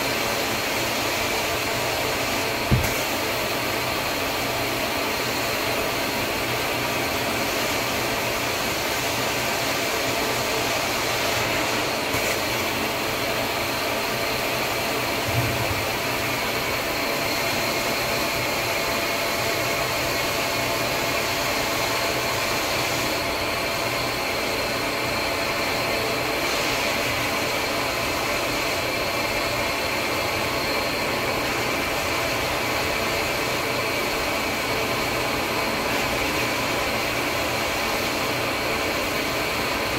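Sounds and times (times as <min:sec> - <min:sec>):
extraction machine suction and whine: 0:00.0 - 0:39.9
low thump: 0:02.7 - 0:03.0.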